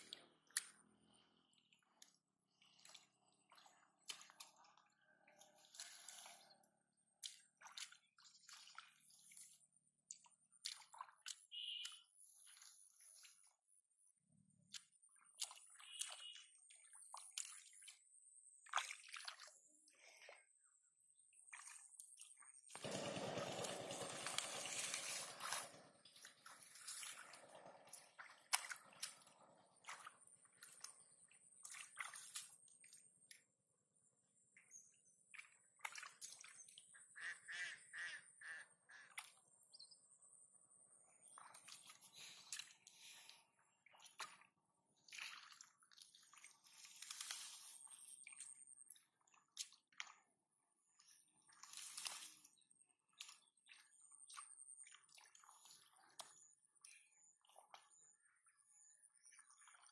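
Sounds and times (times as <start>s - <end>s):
hands splashing in muddy water: 1.9s - 13.7s, 14.5s - 20.5s, 21.5s - 33.4s, 35.3s - 36.7s, 41.2s - 50.3s, 51.0s - 56.4s
faint bird calls: 11.5s - 12.1s.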